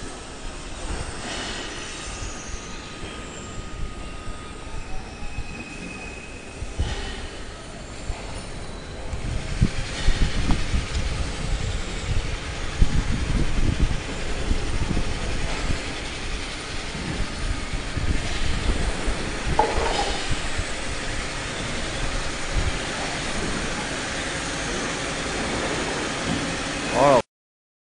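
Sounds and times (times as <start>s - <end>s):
pellet mill rumbling: 9.2s - 27.2s.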